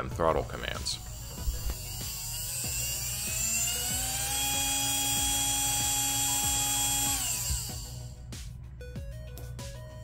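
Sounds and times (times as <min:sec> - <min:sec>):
small electric motor whining: 0:00.9 - 0:08.2.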